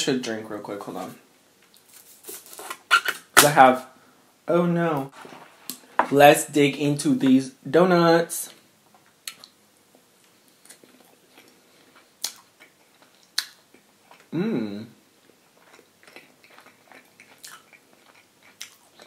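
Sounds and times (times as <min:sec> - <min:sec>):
person chewing food: 0:10.2 - 0:14.4, 0:15.2 - 0:19.0
short hummed voice: 0:14.3 - 0:15.0.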